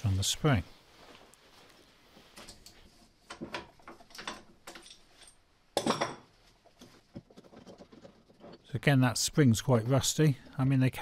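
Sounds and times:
metal clicks and knocks: 0:02.4 - 0:08.7.

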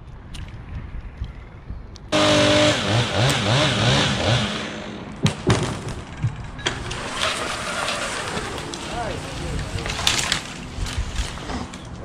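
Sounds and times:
chainsaw engine revving: 0:02.2 - 0:05.1, 0:06.8 - 0:10.5
sharp knocks: 0:05.2 - 0:06.8.

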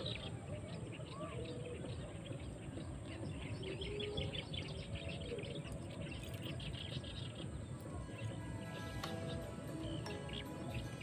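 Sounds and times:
low rumbling background noise: 0:00.0 - 0:11.0
small bird chirping: 0:00.0 - 0:11.0.

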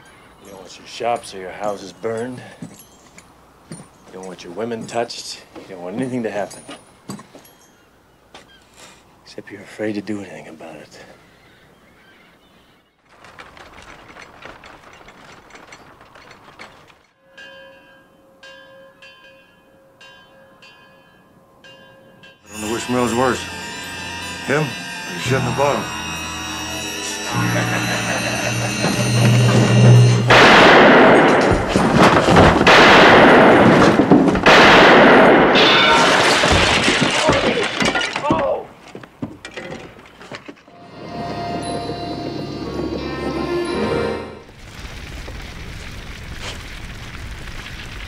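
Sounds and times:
clatter of sharp knocks and clicks: 0:13.1 - 0:17.1
held musical tone: 0:22.4 - 0:31.3, 0:40.7 - 0:44.5
explosion blasts: 0:29.0 - 0:36.8
gunfire clatter: 0:30.3 - 0:37.8.

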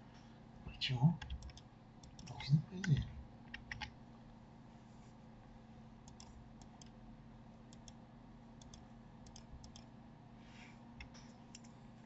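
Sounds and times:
low steady hum: 0:00.0 - 0:12.0
computer mouse clicking: 0:01.2 - 0:04.0, 0:06.0 - 0:07.0, 0:07.7 - 0:08.0, 0:08.6 - 0:09.9, 0:11.0 - 0:11.8.

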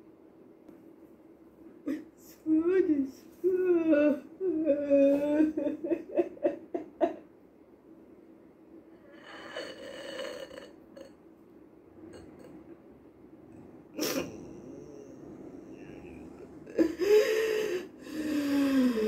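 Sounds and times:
woman sobbing: 0:01.9 - 0:07.2, 0:14.0 - 0:19.0.

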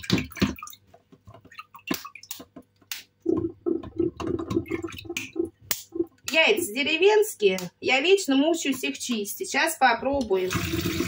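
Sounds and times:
water sloshing in a sink: 0:00.0 - 0:06.4, 0:10.3 - 0:11.0.

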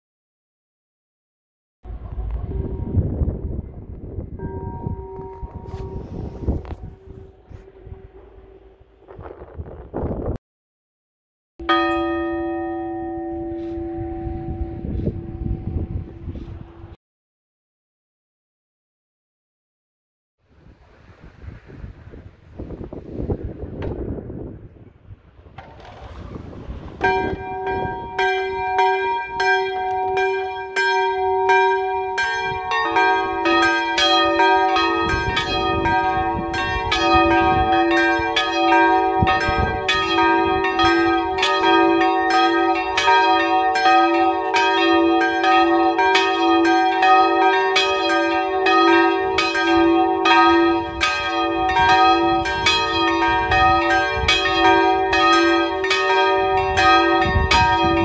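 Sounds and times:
church bells ringing: 0:01.9 - 0:09.1, 0:11.6 - 0:17.0, 0:26.9 - 0:58.0.

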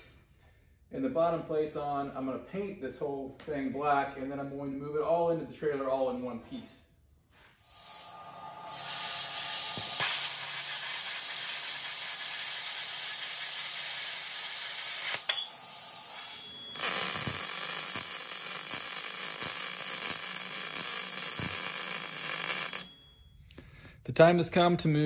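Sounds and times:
welding arc crackling: 0:07.6 - 0:23.0
welder click: 0:07.7 - 0:23.0.

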